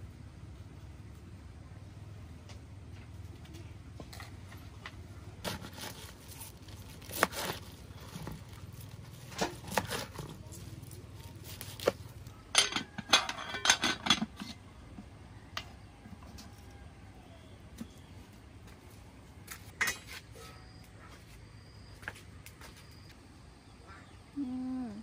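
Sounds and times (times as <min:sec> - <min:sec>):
clicks and knocks of objects handled: 0:02.4 - 0:16.7.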